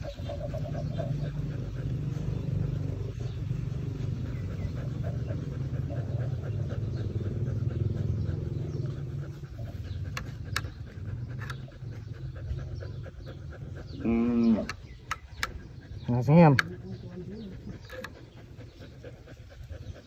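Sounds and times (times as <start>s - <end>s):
dog panting: 0.0s - 20.0s.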